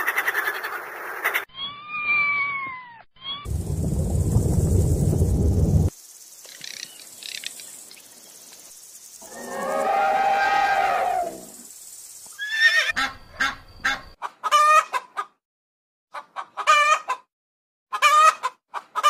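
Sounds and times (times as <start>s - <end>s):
long pitched animal call: 9.2s - 11.5s
rooster crowing: 9.3s - 11.5s
hen clucking: 12.9s - 15.4s, 16.1s - 17.3s, 17.9s - 19.0s.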